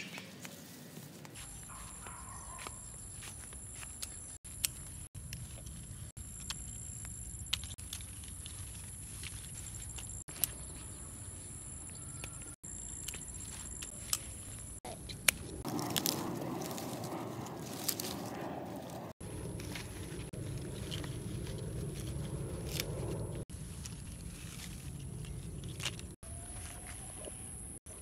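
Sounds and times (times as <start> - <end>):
leaves rustling: 0.0 - 11.7, 12.6 - 27.4
steady low rumble: 13.8 - 26.2.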